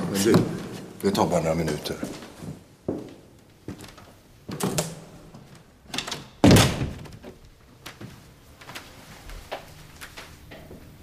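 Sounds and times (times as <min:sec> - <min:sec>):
knocks and scuffs of people moving: 0:00.0 - 0:04.7, 0:06.9 - 0:11.0.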